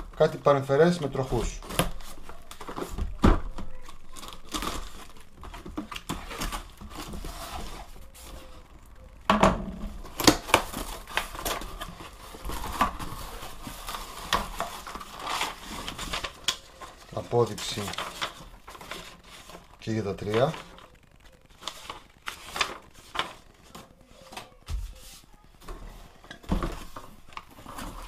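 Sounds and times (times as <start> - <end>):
cardboard scraping and tearing: 3.8 - 8.7, 10.0 - 20.8.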